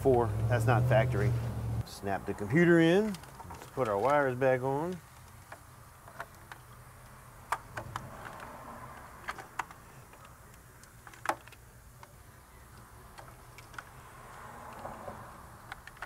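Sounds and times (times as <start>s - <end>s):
plastic connectors clicking: 15.6s - 16.0s.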